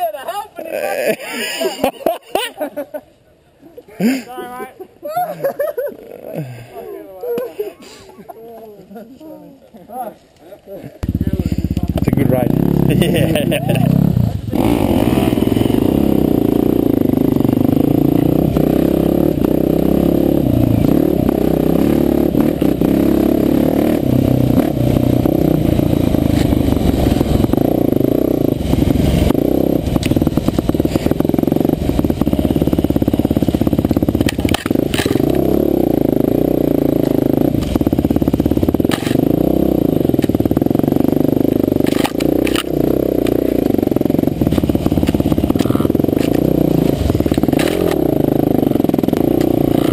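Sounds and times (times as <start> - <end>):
motorcycle engine running: 11.0 - 49.9.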